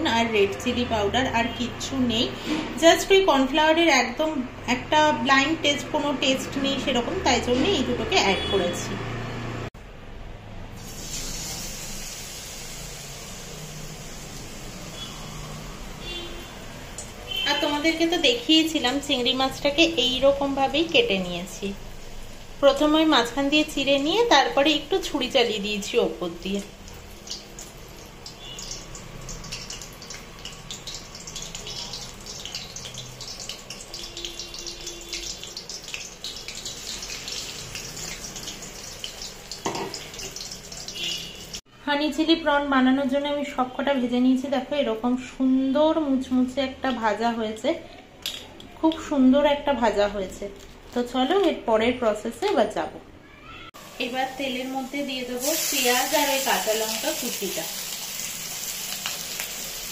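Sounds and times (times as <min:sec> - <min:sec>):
prawn sizzling in hot oil: 0:10.8 - 0:41.7, 0:53.8 - 0:59.9.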